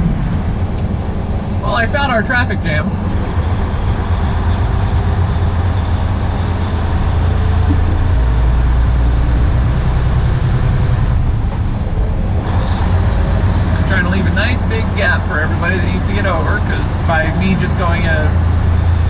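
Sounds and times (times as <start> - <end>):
diesel engine drone: 0.0 - 19.0
tyre and road noise: 0.0 - 19.0.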